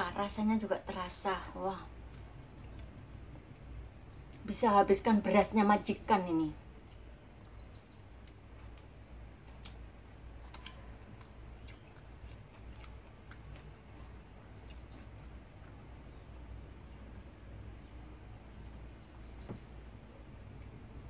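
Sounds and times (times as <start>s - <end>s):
low steady hum: 0.0s - 21.0s
person chewing: 10.4s - 16.0s.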